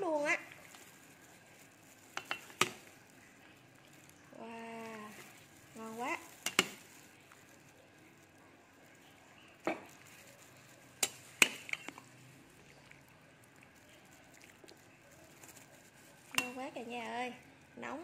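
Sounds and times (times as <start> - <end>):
metal ladle clinking on pot: 2.2 - 2.8, 6.4 - 6.8, 11.0 - 12.0, 16.3 - 16.6.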